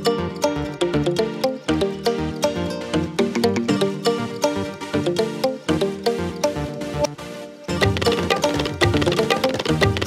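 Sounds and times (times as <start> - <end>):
instrumental tune with galloping beat: 0.0 - 10.0.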